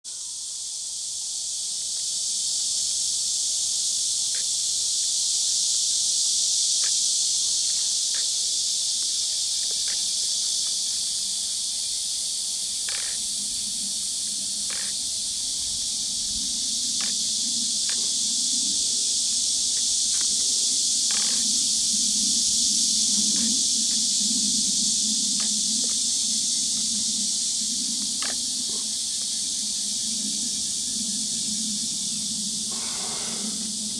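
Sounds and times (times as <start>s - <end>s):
insect chorus hissing: 0.0s - 33.9s.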